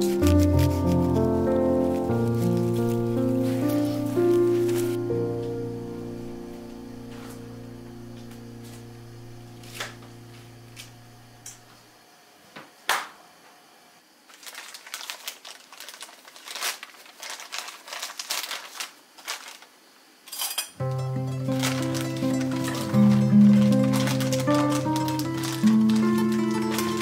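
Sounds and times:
plastic wrapping crinkling: 0.0 - 5.0, 14.3 - 19.8, 20.9 - 27.0
background music: 0.0 - 8.2, 20.8 - 27.0.

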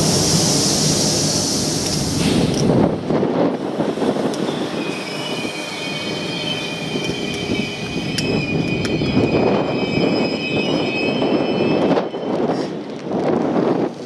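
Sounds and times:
train wheels rumbling on rail: 0.0 - 14.0
high brake squeal: 4.4 - 12.7.

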